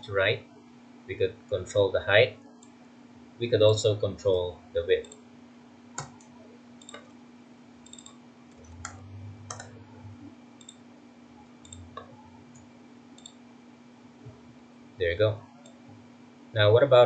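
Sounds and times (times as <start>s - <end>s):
faint electrical hum: 0.0s - 17.0s.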